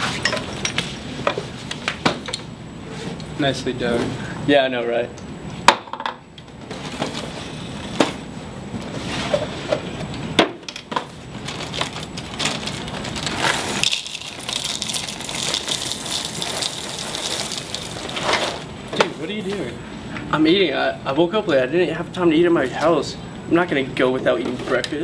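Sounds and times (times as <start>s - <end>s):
cereal pouring into plastic bowl: 12.6s - 18.6s.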